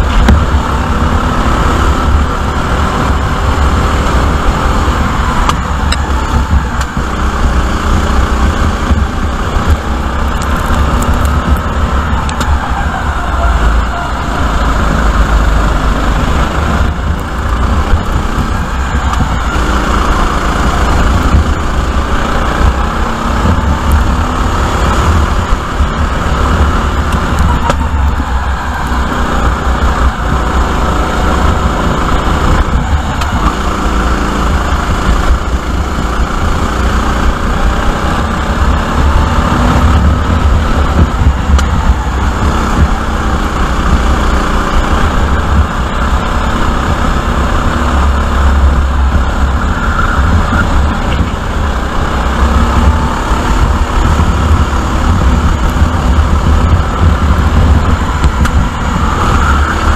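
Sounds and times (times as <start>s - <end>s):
kart engine running hard: 0.0s - 59.9s.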